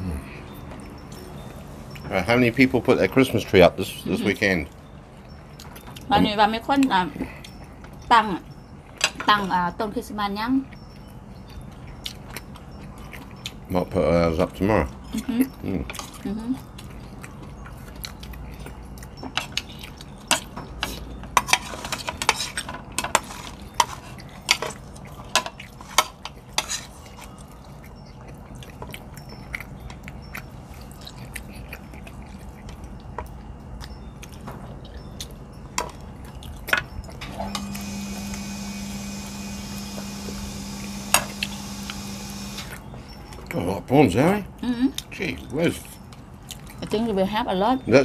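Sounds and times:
low hum with hiss: 0:00.0 - 0:48.0
cutlery clinking on ceramic plates: 0:19.2 - 0:26.9.

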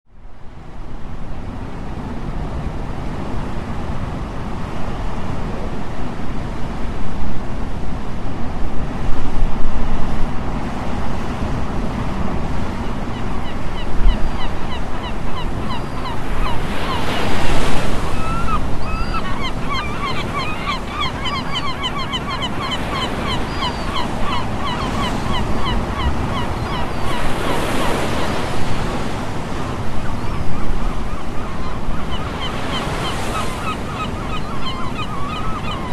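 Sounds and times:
surf washing ashore: 0:00.2 - 0:35.9
wind on microphone: 0:00.3 - 0:35.9
birds calling: 0:12.7 - 0:35.9.

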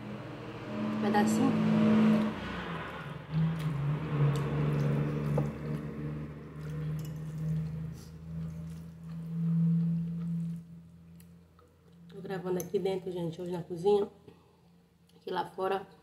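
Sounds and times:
wet chewing of noodles: 0:02.9 - 0:12.1.

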